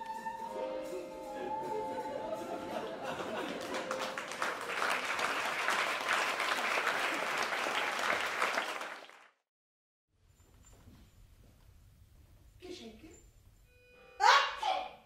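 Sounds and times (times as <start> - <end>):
audience applauding: 1.4 - 9.4.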